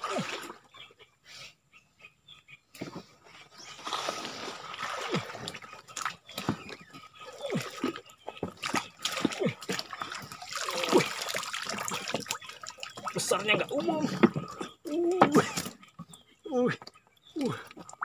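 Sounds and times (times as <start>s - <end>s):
water splashing and sloshing: 0.0s - 0.9s, 2.8s - 18.0s
water plops and drips: 3.8s - 15.8s.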